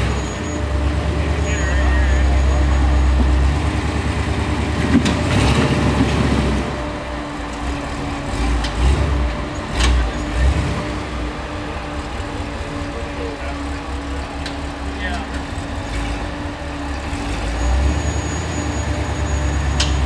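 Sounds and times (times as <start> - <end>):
engine revving: 0.0 - 6.9, 7.5 - 20.0.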